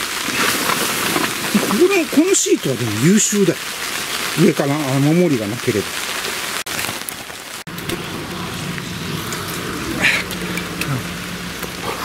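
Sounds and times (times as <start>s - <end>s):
heavy rain falling: 0.0s - 12.0s
low steady hum: 7.7s - 12.0s.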